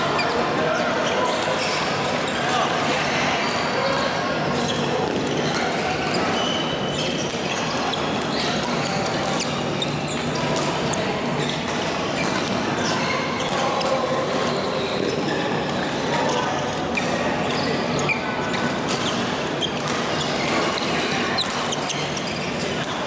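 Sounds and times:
shoe squeaks on court floor: 0:00.0 - 0:02.7, 0:03.4 - 0:23.0
voices echoing in hall: 0:00.0 - 0:23.0
rackets hitting shuttlecocks: 0:11.5 - 0:12.6.

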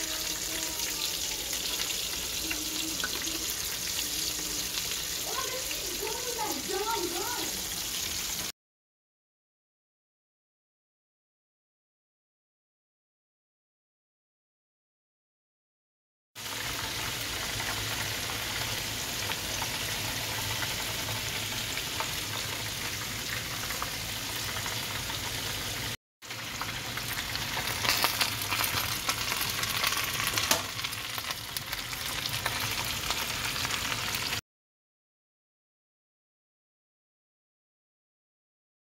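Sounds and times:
food sizzling in hot oil: 0:00.0 - 0:08.5, 0:16.4 - 0:34.4
oil crackling and spattering: 0:26.3 - 0:34.4.

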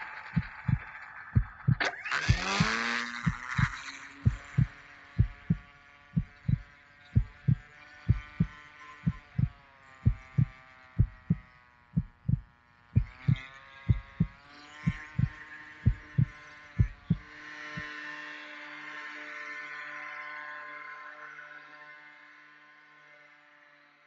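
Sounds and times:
electric motor whine: 0:00.0 - 0:19.4
heartbeat double thump: 0:00.3 - 0:17.2.

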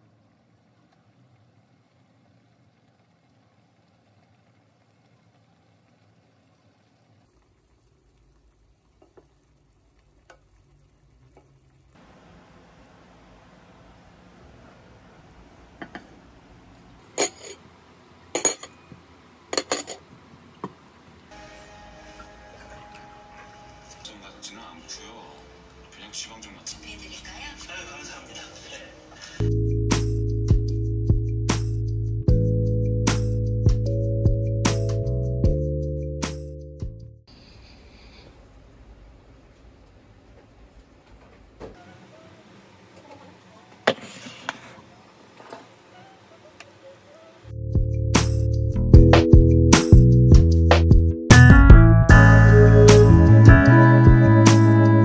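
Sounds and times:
steady faint hiss: 0:00.0 - 0:29.5, 0:37.3 - 0:47.6
music with low bass and beat: 0:29.4 - 0:37.1, 0:47.5 - 0:55.0.

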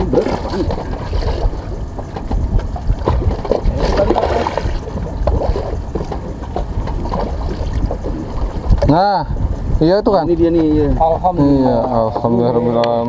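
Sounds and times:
wind and water rumble: 0:00.0 - 0:13.0.

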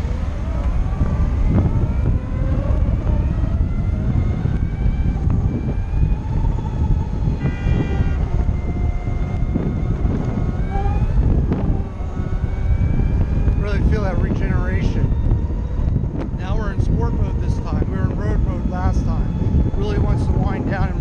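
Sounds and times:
wind rumble on microphone: 0:00.0 - 0:21.0.

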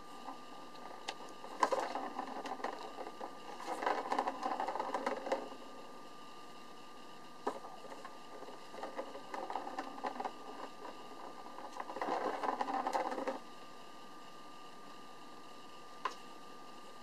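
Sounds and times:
plastic ball rolling and rattling: 0:00.2 - 0:05.9, 0:07.4 - 0:13.5.

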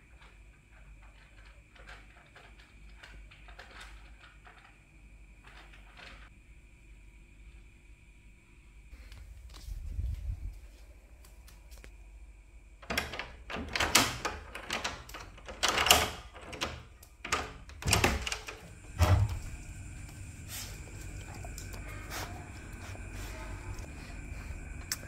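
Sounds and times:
door lock and handle clacks: 0:12.8 - 0:19.4
door thump: 0:18.9 - 0:19.5.

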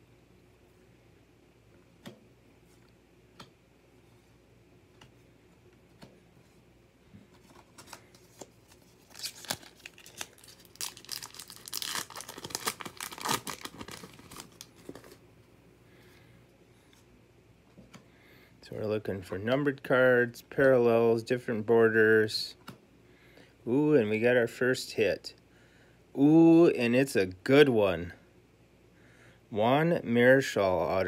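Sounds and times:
card pack wrapper tearing and crinkling: 0:07.5 - 0:15.2.

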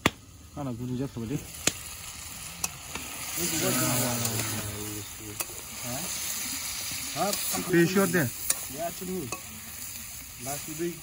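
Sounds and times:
food sizzling: 0:00.0 - 0:11.0
metal spatula scraping wok: 0:02.6 - 0:10.7.

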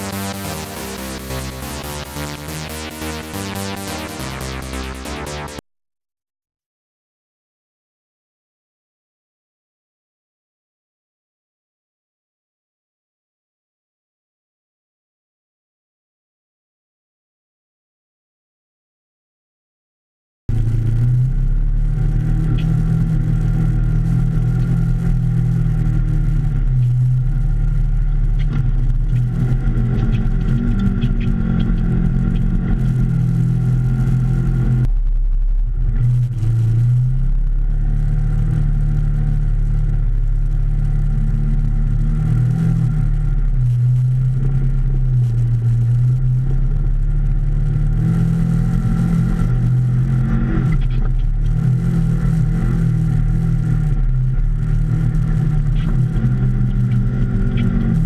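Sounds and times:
engine revving: 0:00.0 - 0:05.6, 0:20.5 - 0:58.0.

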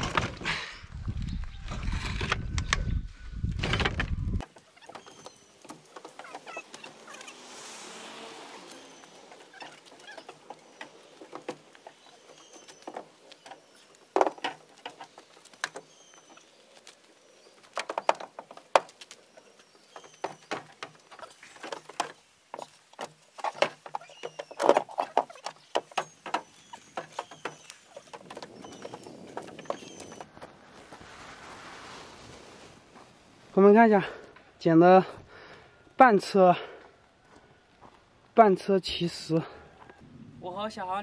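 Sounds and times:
heavy stones clattering into truck bed: 0:00.0 - 0:00.6
faint bird chirps: 0:04.6 - 0:07.4, 0:11.8 - 0:14.0, 0:15.8 - 0:18.1, 0:23.9 - 0:30.3.

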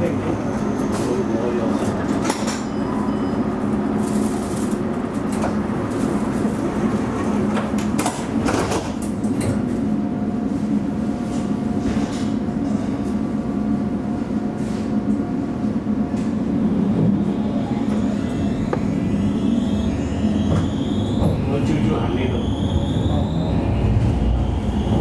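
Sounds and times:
tram humming: 0:00.0 - 0:25.0
traction motors whining: 0:16.2 - 0:25.0
constant electronic tone: 0:17.0 - 0:23.4.

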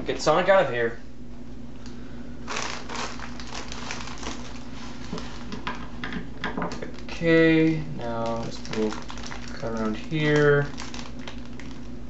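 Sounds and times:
mailer bag crinkling: 0:02.5 - 0:05.7, 0:08.0 - 0:12.0.

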